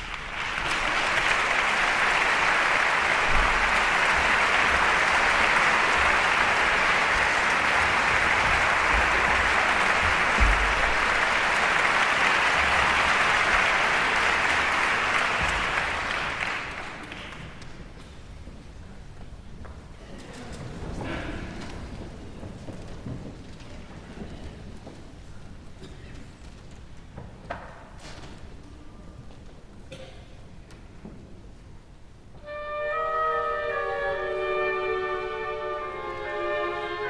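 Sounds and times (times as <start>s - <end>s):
audience applauding: 0.0s - 17.8s.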